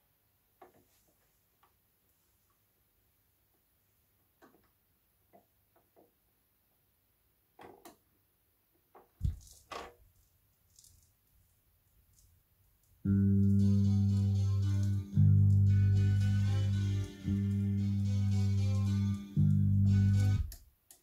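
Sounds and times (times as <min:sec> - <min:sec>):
stylus thump: 0:09.2 - 0:09.5
record crackle: 0:09.2 - 0:20.6.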